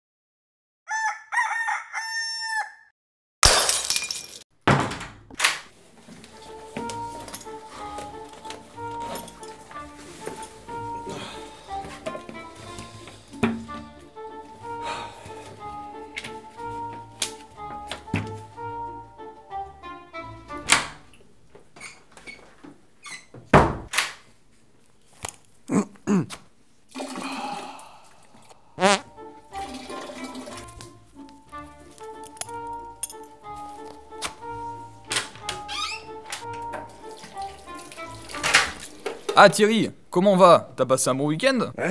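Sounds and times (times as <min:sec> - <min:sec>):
rooster crowing: 0:00.9 - 0:02.9
glass shattering: 0:03.4 - 0:04.4
toilet flushing: 0:26.9 - 0:27.9, 0:29.2 - 0:30.9, 0:36.6 - 0:39.4
short sounds falling in pitch: 0:28.8 - 0:29.1.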